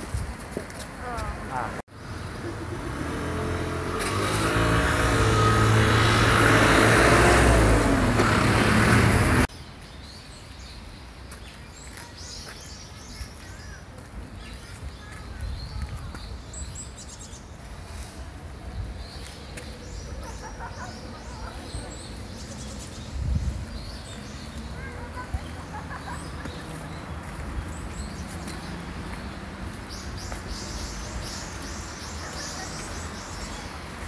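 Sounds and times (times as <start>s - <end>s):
birds chirping: 18.7s - 34.0s.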